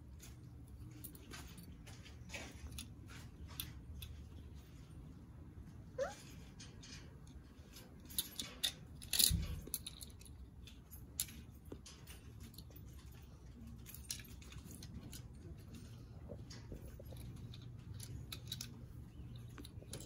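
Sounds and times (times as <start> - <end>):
toy cars clicking and clacking: 6.7 - 20.0.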